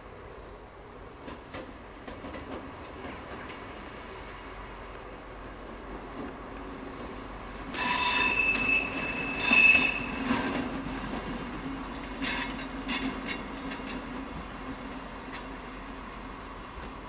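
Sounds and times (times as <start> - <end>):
locomotive engine hum: 0.0 - 17.0
steel wheels squealing on rails: 6.9 - 14.0.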